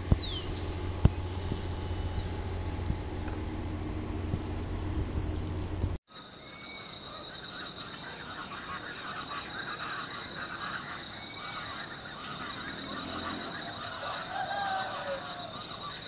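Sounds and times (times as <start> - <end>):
whistled calls: 0.0 - 2.9, 4.9 - 16.0
short chirping calls: 0.0 - 3.0, 4.9 - 16.0
low hum: 0.0 - 6.0.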